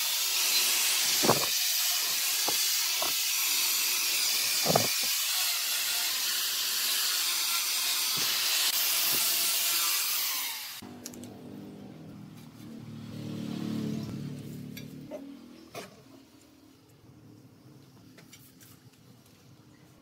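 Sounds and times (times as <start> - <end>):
power sander hissing on wood: 0.0 - 10.8.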